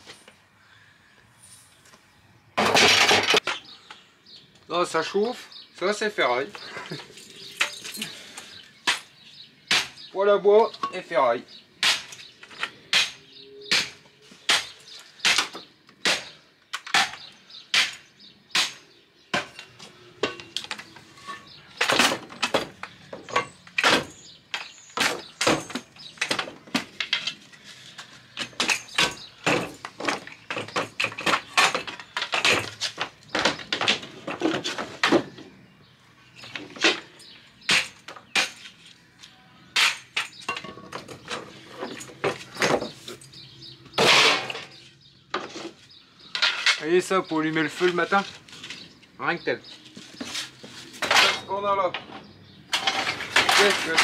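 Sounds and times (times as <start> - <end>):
scrap metal clattering: 39.8 - 49.0, 52.7 - 54.0.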